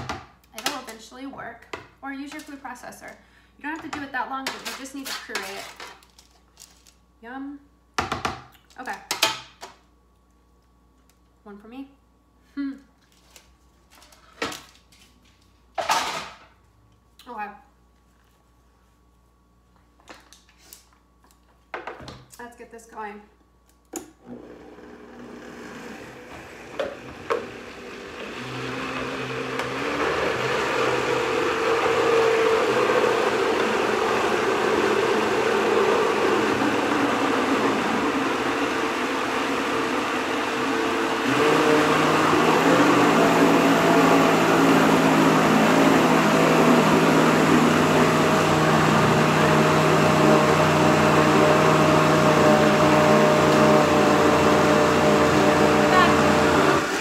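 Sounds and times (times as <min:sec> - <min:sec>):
blender running: 0:24.2 - 0:57.0.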